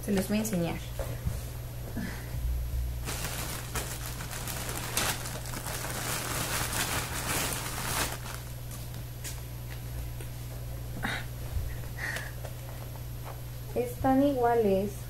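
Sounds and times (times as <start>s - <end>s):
steady low hum: 0.0s - 15.0s
rustling and clattering of things: 3.0s - 9.4s.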